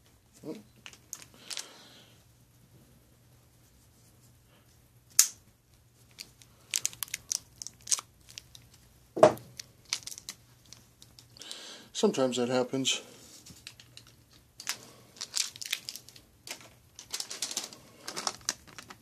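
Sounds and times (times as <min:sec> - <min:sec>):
plastic packet crinkling and tearing: 0:00.8 - 0:01.7, 0:06.1 - 0:08.8, 0:09.5 - 0:11.4, 0:13.6 - 0:19.0
loud thump: 0:09.2 - 0:09.4.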